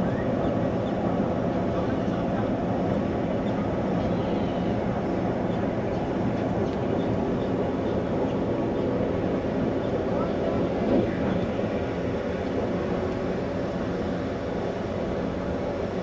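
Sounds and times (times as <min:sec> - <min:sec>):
ship engines rumbling: 0:00.0 - 0:16.0.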